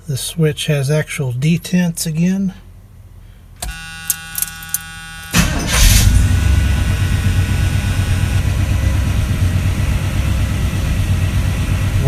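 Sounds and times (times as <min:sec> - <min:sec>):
engine starter cranking: 0:03.6 - 0:06.6
dash warning buzzer: 0:03.6 - 0:08.9
engine idling: 0:03.6 - 0:12.0.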